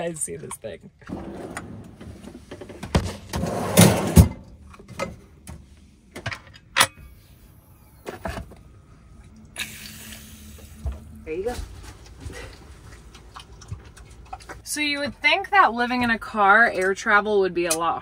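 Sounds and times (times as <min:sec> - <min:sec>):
wire basket drawer sliding out: 0:03.2 - 0:04.4.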